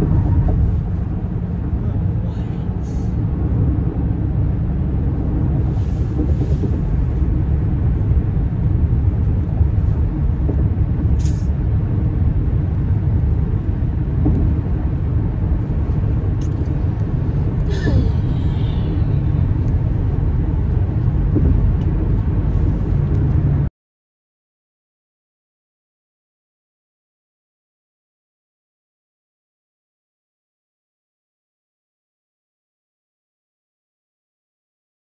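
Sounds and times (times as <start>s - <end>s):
vehicle rumble: 0.0s - 23.7s.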